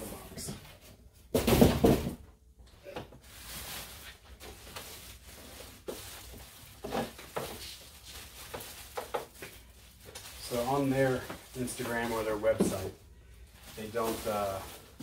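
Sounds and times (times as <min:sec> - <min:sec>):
plastic bag crinkling: 0:03.2 - 0:15.0.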